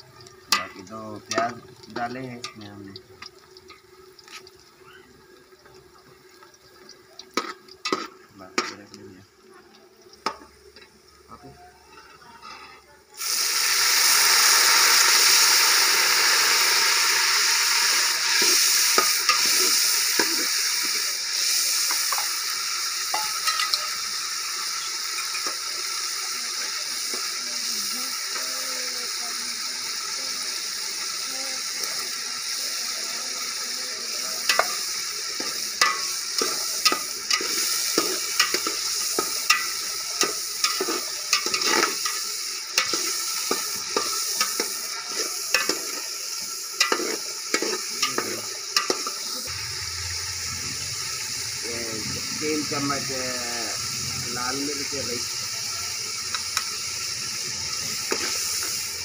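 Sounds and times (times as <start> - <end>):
onions sizzling in hot oil: 0.0 - 59.0
metal spatula scraping a pot: 11.8 - 12.9, 34.5 - 42.2, 46.8 - 49.2.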